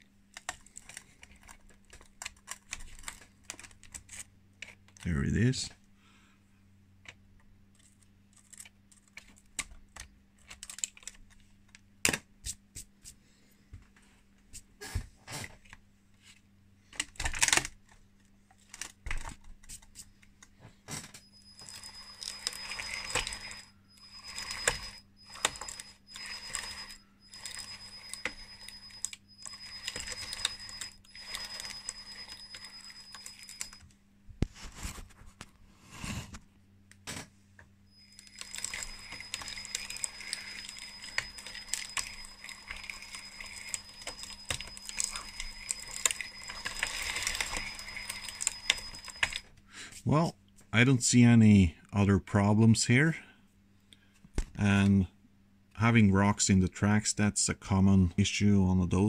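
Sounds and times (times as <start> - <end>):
electric motor whine: 21.4 - 33.8.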